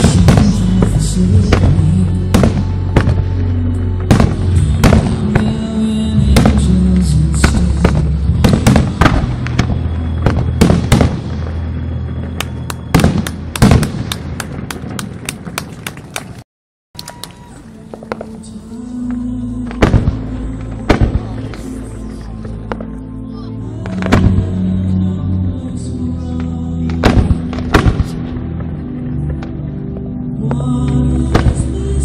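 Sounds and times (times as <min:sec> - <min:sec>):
loud music with deep bass: 0:00.0 - 0:11.2, 0:19.0 - 0:32.0
firework bangs: 0:00.0 - 0:16.4, 0:19.6 - 0:22.0, 0:23.8 - 0:24.7, 0:26.8 - 0:29.6, 0:30.9 - 0:32.0.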